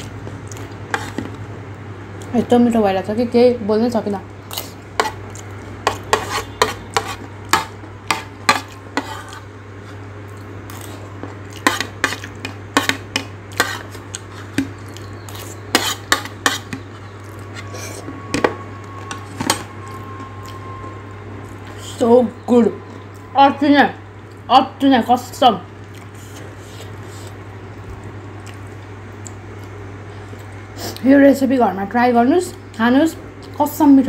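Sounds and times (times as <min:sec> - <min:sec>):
spoon scraping ceramic plate: 0:05.8 - 0:10.0, 0:11.6 - 0:18.1.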